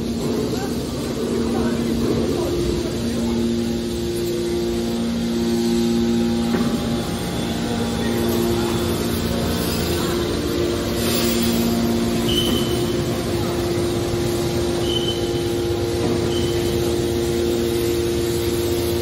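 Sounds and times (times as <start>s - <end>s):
hydraulic power unit humming: 0.0s - 19.0s
low two-tone whine: 0.0s - 19.0s.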